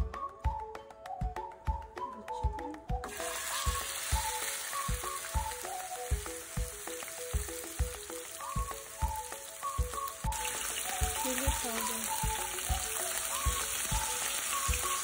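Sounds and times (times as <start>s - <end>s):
background music with steady beat: 0.0s - 15.0s
chicken sizzling in frying pan: 3.1s - 15.0s.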